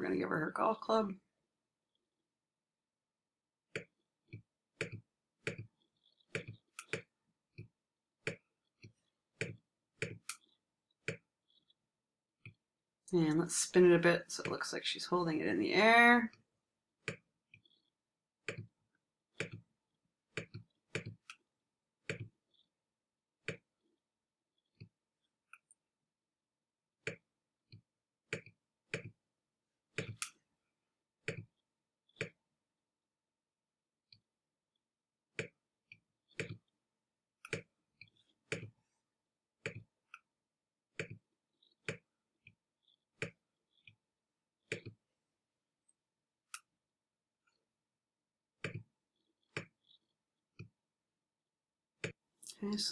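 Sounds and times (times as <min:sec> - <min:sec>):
computer mouse clicking: 0:04.8 - 0:07.7.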